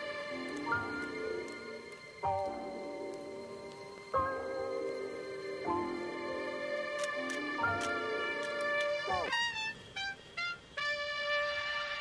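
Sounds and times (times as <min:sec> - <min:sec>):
instrumental background music: 0:00.0 - 0:09.4.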